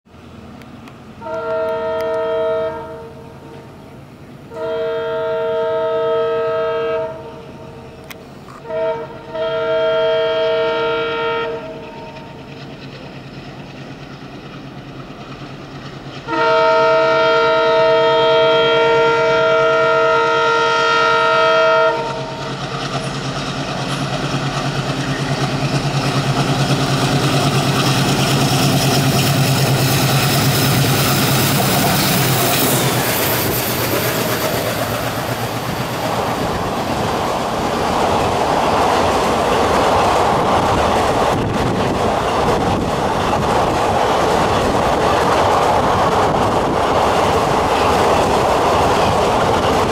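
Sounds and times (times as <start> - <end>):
train running noise: 0.1 - 49.9
two-tone locomotive horn blasts: 1.2 - 3.6, 4.5 - 12.3, 16.2 - 22.4.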